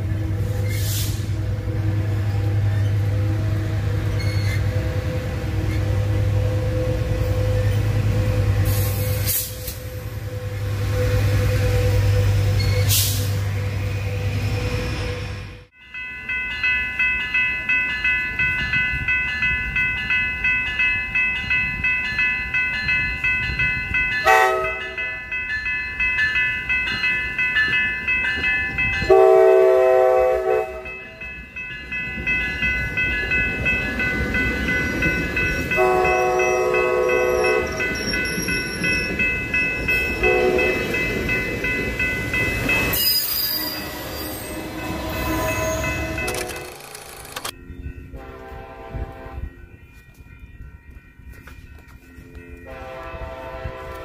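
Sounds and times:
train wheels rumbling on rails: 0.0 - 15.8, 18.3 - 54.0
crossing warning bell ringing: 0.0 - 54.0
train air horn: 24.2 - 25.0, 29.1 - 30.9, 35.8 - 37.8, 40.2 - 40.8, 43.5 - 46.6, 48.2 - 49.4, 52.7 - 54.0.

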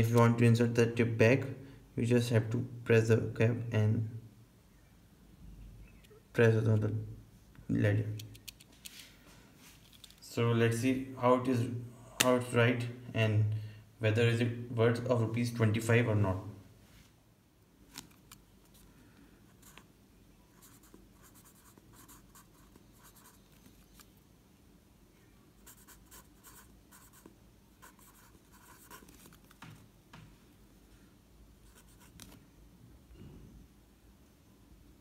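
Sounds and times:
pencil writing on paper: 20.6 - 23.4, 25.6 - 29.2.

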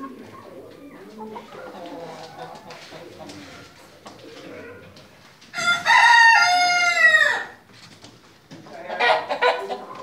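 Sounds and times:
rooster crowing: 5.6 - 7.6.

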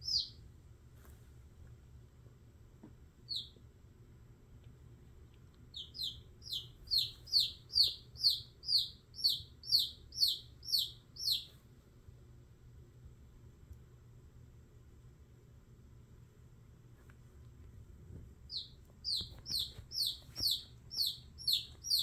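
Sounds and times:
chick peeping in distress: 5.8 - 11.5.

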